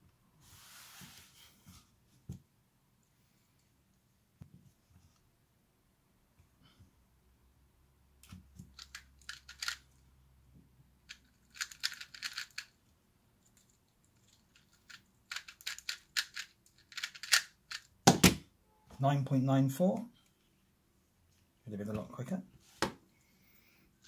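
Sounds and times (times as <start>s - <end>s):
speed cube clicky turns: 8.8s - 9.8s, 11.1s - 12.8s, 13.6s - 17.9s.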